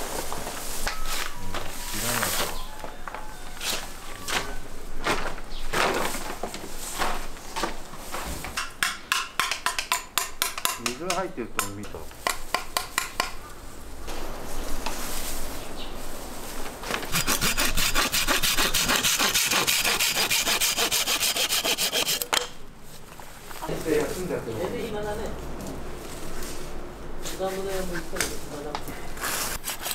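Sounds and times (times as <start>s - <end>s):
hand saw cutting bamboo: 17.1s - 22.4s, 29.2s - 29.9s.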